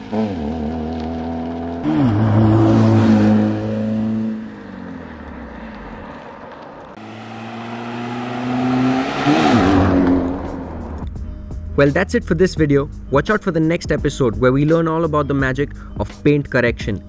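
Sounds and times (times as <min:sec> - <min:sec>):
car engine passing by: 0:00.0 - 0:11.2.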